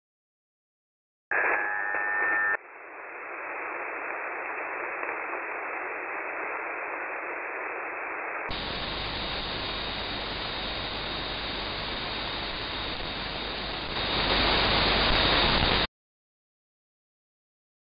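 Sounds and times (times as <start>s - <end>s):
radio static and hiss: 1.3s - 15.9s
loud steady tones: 8.5s - 15.9s.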